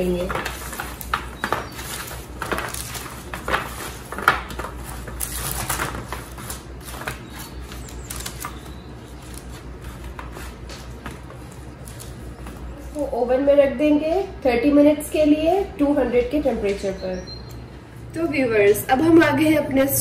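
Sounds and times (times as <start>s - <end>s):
paper rustling: 0.0s - 13.1s.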